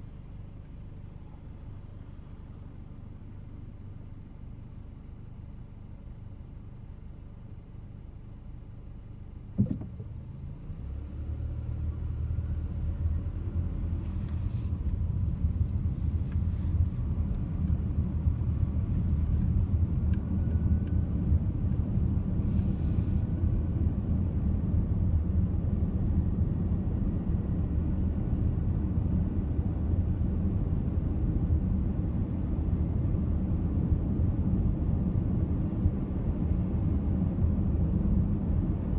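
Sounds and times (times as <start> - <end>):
car engine and tyre noise: 0.0 - 38.9
knock inside car: 9.6 - 10.0.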